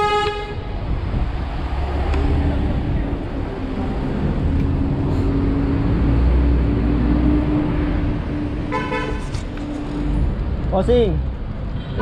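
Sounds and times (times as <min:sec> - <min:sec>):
vehicle engine rumble: 0:00.0 - 0:11.8.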